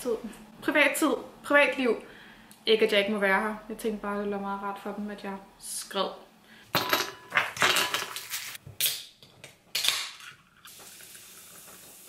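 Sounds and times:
cola fizzing over ice: 10.6 - 12.0.

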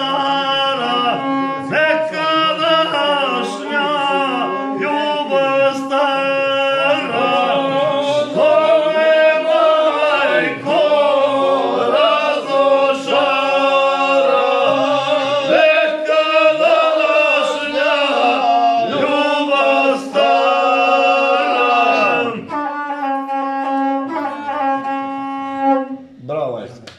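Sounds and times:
men singing together: 0.0 - 22.5.

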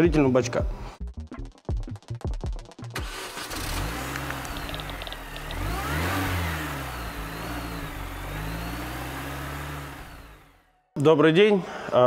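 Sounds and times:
car engine revving: 3.0 - 10.9.

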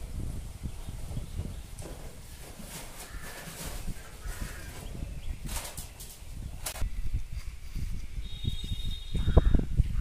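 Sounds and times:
microphone handling rumble: 0.0 - 10.0
faint high whistle: 8.2 - 9.2.

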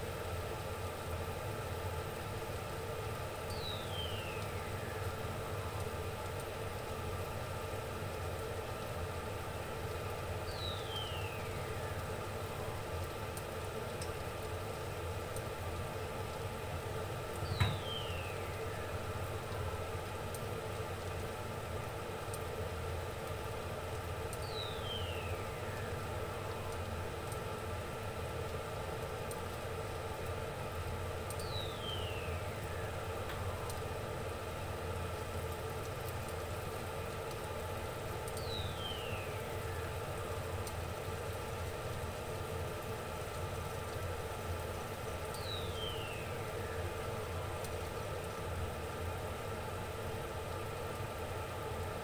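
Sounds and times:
pot of mussels steaming: 0.0 - 52.0
stovetop hum and hiss: 0.0 - 52.0
faint falling whistle: 17.5 - 18.1.

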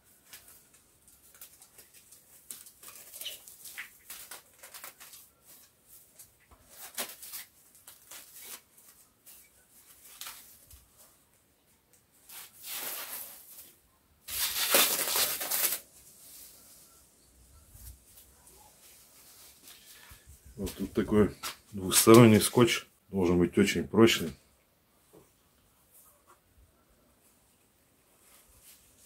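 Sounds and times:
plastic film crinkling: 0.0 - 11.1, 12.2 - 17.0.

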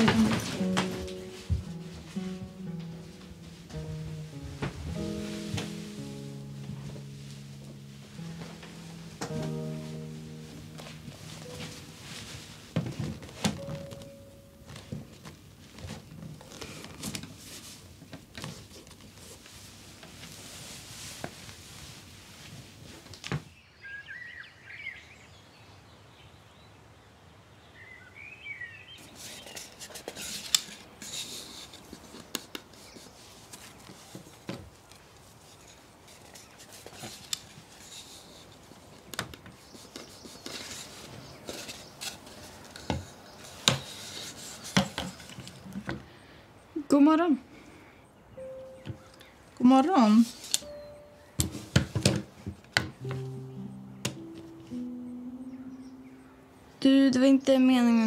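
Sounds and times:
bird chirps: 23.6 - 26.4, 48.3 - 49.5, 50.6 - 51.5, 53.0 - 56.8
tools and wood knocking on workbench: 51.4 - 53.0.

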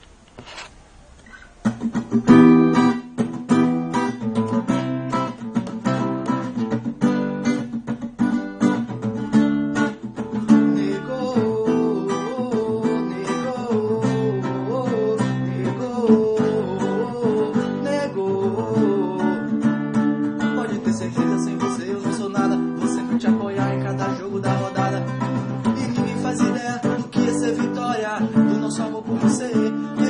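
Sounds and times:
acoustic guitar strumming: 0.4 - 30.0
person singing: 10.5 - 19.8, 20.4 - 30.0.

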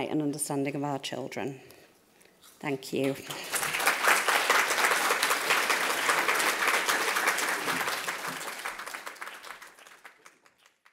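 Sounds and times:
audience applauding: 3.0 - 10.9.

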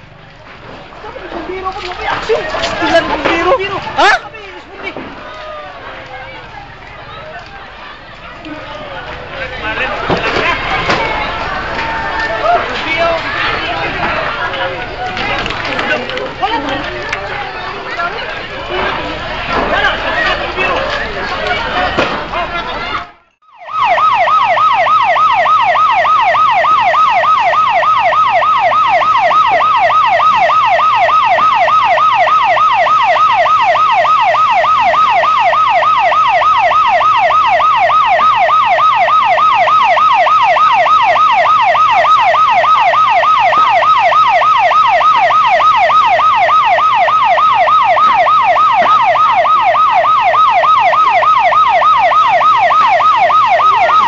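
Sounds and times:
electronic siren yelping: 23.4 - 54.0.

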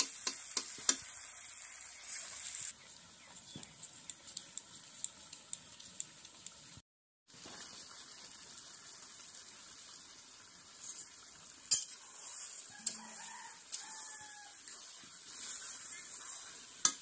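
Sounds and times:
curry sizzling in a pan: 0.0 - 17.0
spatula scraping a pan: 10.8 - 17.0
rooster crowing: 12.7 - 14.7.

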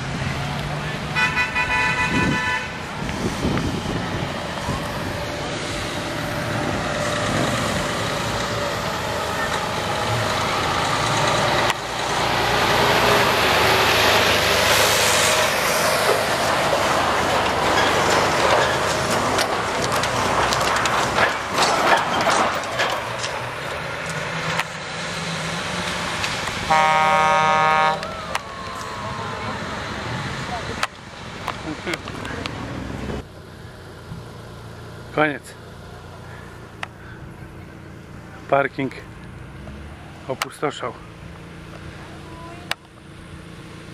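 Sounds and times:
diesel truck engine: 0.0 - 43.9
loud road noise: 0.0 - 43.9
horn blaring: 1.1 - 2.9, 26.6 - 30.4.

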